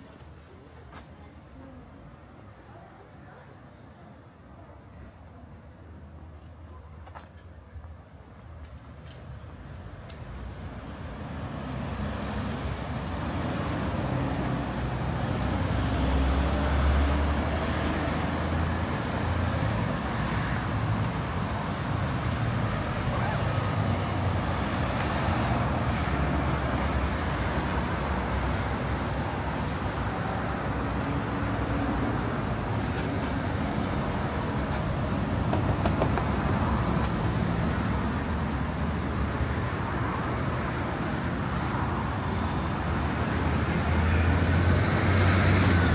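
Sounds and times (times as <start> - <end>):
cars driving past: 10.4 - 45.9.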